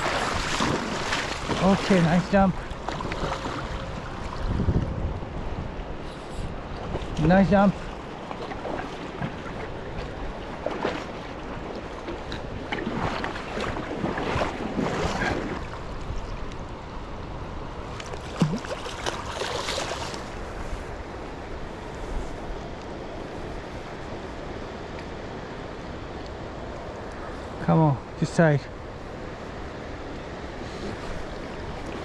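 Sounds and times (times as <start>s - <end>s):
creek water running over rocks: 0.0s - 5.0s, 5.9s - 16.7s, 17.9s - 23.2s
wind on microphone: 0.0s - 17.7s
water swishes: 0.0s - 32.0s.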